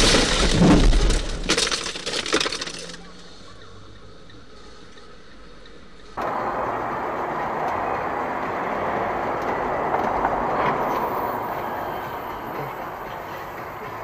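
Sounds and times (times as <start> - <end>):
vehicle collision crunching: 0.0 - 3.0, 6.2 - 14.0
steady vehicle noise: 0.0 - 14.0.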